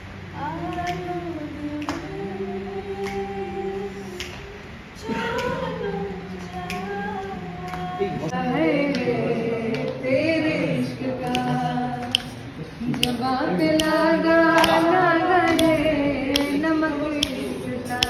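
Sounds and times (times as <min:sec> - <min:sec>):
men and women singing unaccompanied: 0:00.0 - 0:18.0
sharp clicks: 0:11.3 - 0:12.4, 0:13.0 - 0:14.9, 0:15.5 - 0:18.0.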